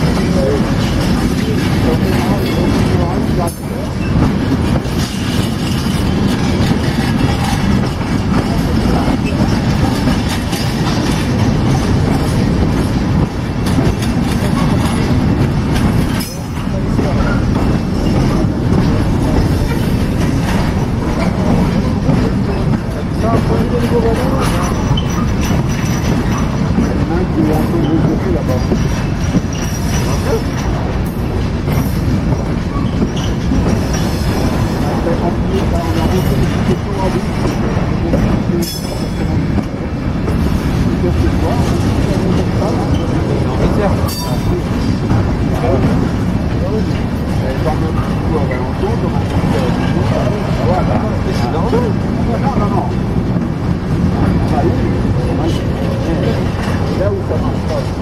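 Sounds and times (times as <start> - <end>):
freight train wheels rumbling: 0.0 - 58.0
wheel squeals: 24.5 - 26.6, 32.7 - 34.4.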